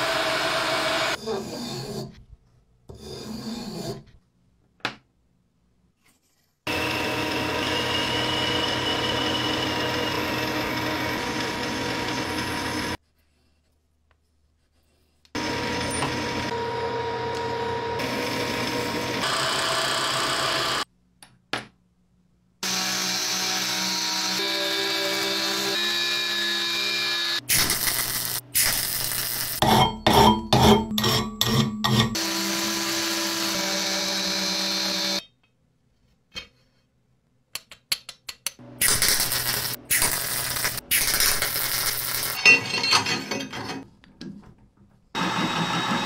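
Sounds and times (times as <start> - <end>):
lathe cutting metal: 6.7 - 13.0, 22.7 - 27.4.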